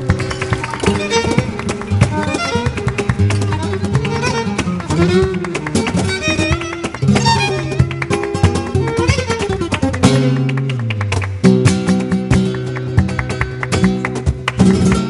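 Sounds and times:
acoustic guitar plucking and strumming: 0.0s - 15.0s
bowed violin: 0.4s - 10.2s.

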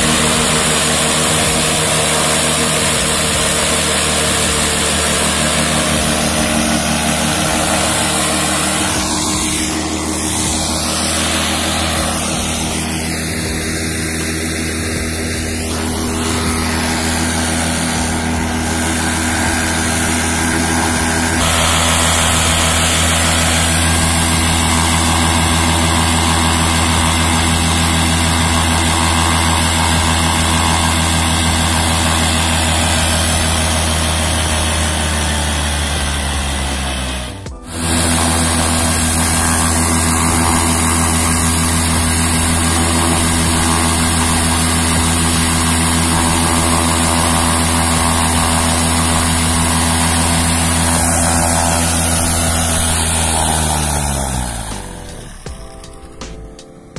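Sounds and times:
paramotor engine and propeller drone: 0.0s - 56.2s.

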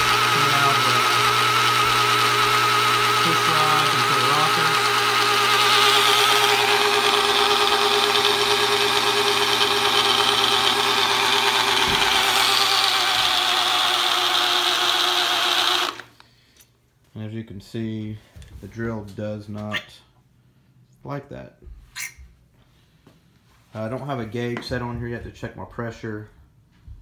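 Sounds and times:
electric drill running: 0.0s - 16.2s.

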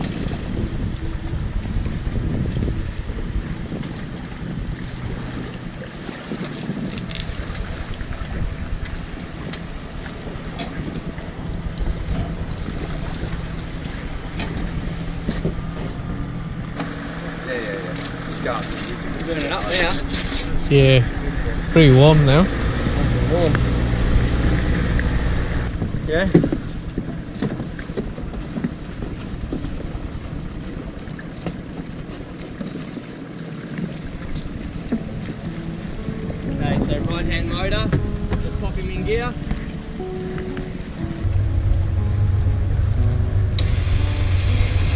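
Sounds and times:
boat engine idling: 0.0s - 44.9s
wind buffeting microphone: 0.0s - 44.9s
engine idling: 41.2s - 44.9s.

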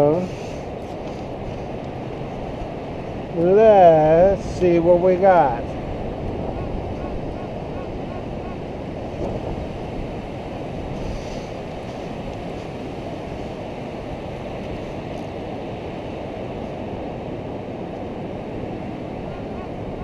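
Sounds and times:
wind rumbling on microphone: 0.0s - 20.0s
surf washing onto beach: 7.1s - 20.0s.

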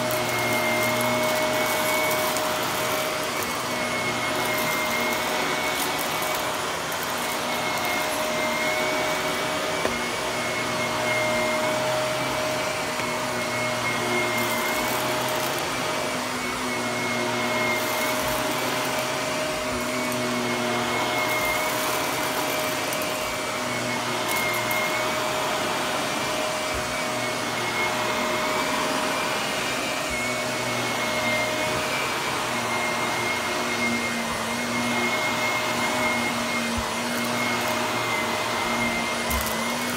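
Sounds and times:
vacuum cleaner running on carpet: 0.0s - 39.9s.

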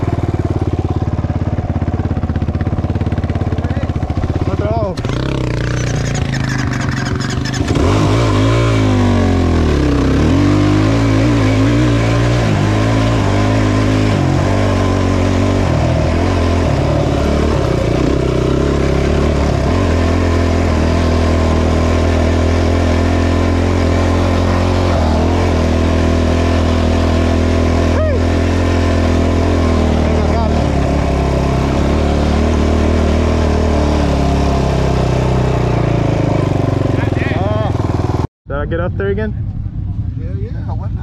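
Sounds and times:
vehicle engine revving: 0.0s - 41.0s.

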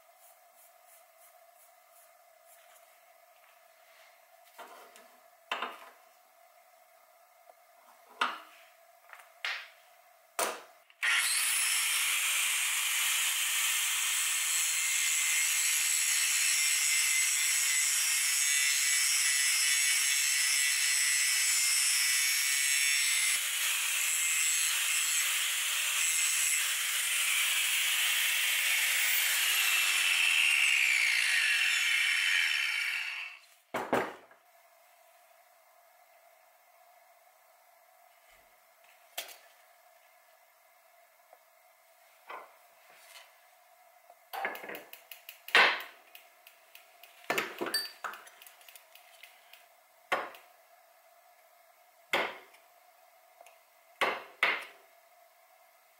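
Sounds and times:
angle grinder cutting metal bar: 11.0s - 33.4s.

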